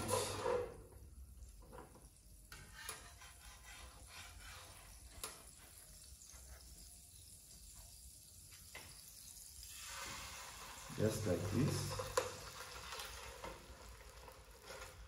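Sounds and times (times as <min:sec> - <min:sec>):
metal spatula clicking and scraping: 0:02.5 - 0:05.6.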